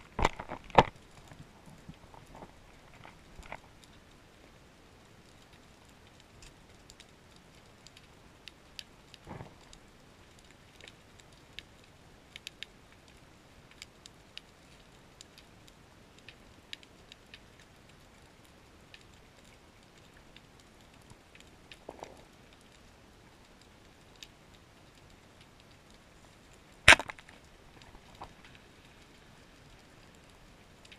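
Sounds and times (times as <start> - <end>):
underwater clicks and crackles: 0.0 - 30.9.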